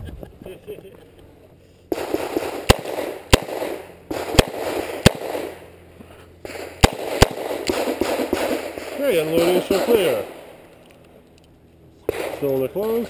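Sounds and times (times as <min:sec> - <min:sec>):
revolver shots with echo: 0:01.9 - 0:05.8.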